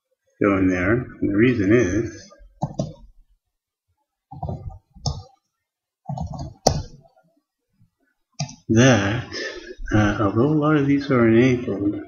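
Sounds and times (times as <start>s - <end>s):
typing on laptop keyboard: 2.6s - 3.0s, 4.3s - 5.3s, 6.1s - 6.9s.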